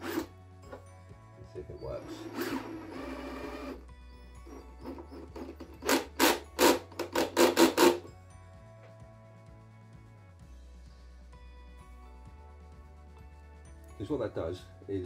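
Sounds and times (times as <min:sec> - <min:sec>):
cordless drill driving screw: 0:00.0 - 0:00.3, 0:02.0 - 0:03.8, 0:04.4 - 0:08.1.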